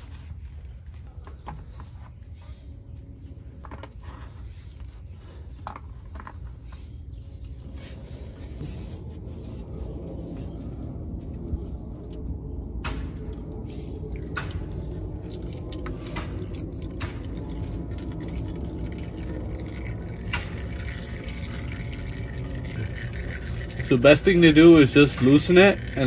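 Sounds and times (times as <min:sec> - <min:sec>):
oil dripping into a pan: 0:14.0 - 0:26.0.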